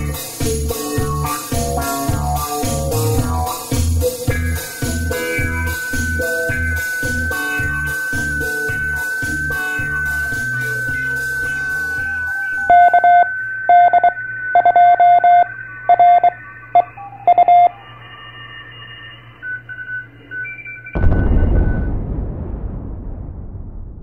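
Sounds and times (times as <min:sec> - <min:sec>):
intro music with beat: 0:00.0 - 0:15.4
steady high tone: 0:04.0 - 0:20.3
morse code beeps: 0:04.9 - 0:21.9.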